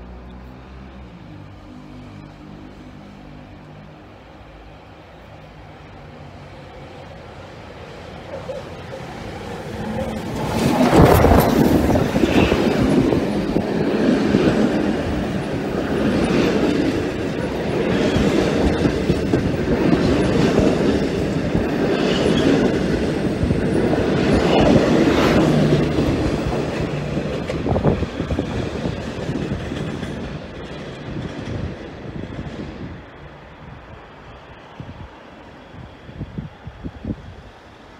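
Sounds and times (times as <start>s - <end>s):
train wheels rumbling on rails: 0.0s - 37.9s
wheels clickety-clack: 8.3s - 32.8s.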